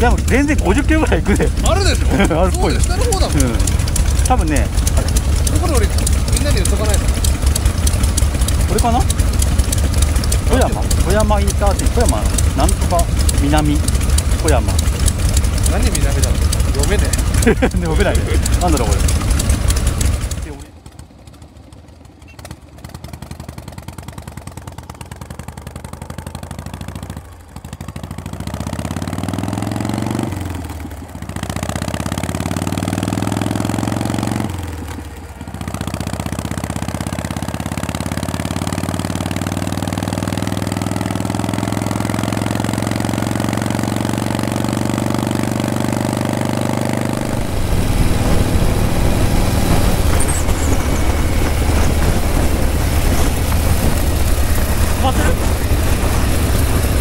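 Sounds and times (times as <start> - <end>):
motorcycle accelerating through gears: 0.0 - 57.0
low rumble of wind: 47.0 - 57.0.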